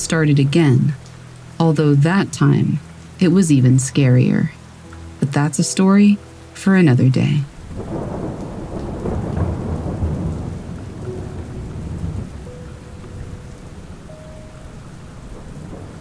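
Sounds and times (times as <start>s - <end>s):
steady rain: 0.0s - 16.0s
thunder rumbling: 7.5s - 16.0s.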